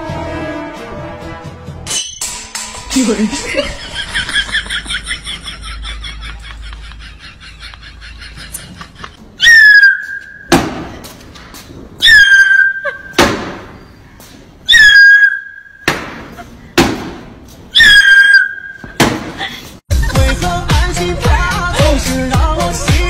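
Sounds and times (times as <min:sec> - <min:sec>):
loud sliding whistle tones: 0:09.4 - 0:10.5, 0:12.0 - 0:13.0, 0:14.7 - 0:15.9, 0:17.8 - 0:19.0
sharp thud: 0:10.5 - 0:11.0, 0:18.8 - 0:19.4.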